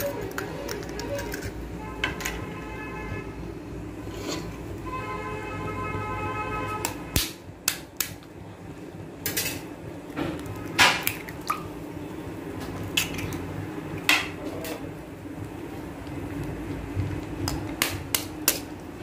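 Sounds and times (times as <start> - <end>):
eggs cracking against wok: 6.8 - 8.4, 12.6 - 19.0.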